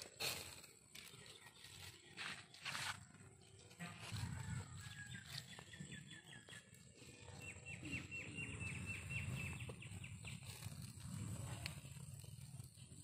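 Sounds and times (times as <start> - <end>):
bird chirping: 4.8 - 13.0.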